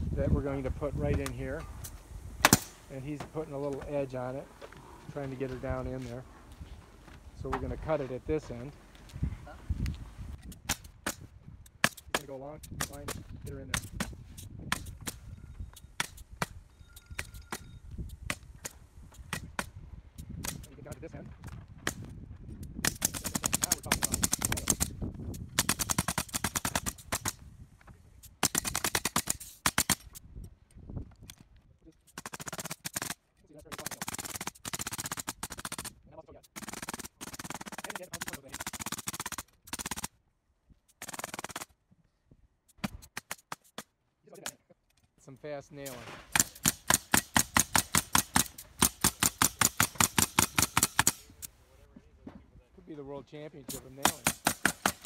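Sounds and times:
pneumatic nailer firing nails: 0:01.8 - 0:02.8, 0:22.8 - 0:27.4, 0:28.2 - 0:30.2, 0:32.1 - 0:40.1, 0:40.9 - 0:41.8, 0:42.7 - 0:43.9, 0:45.9 - 0:51.5, 0:53.7 - 0:55.0.

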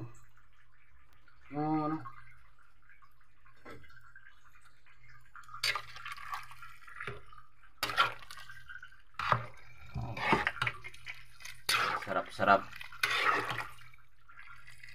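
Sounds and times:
liquid sloshing in a pot: 0:00.0 - 0:14.9
ladle scraping a metal pot: 0:05.6 - 0:07.2, 0:07.8 - 0:08.6, 0:09.2 - 0:14.9.

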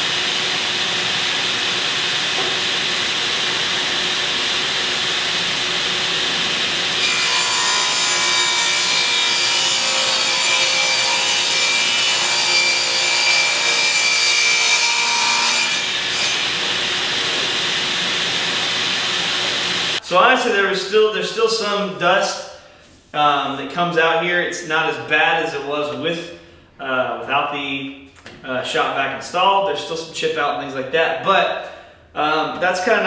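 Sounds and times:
table saw running: 0:00.0 - 0:20.2
shop vacuum running: 0:00.0 - 0:21.6
saw blade cutting board: 0:02.0 - 0:20.0.

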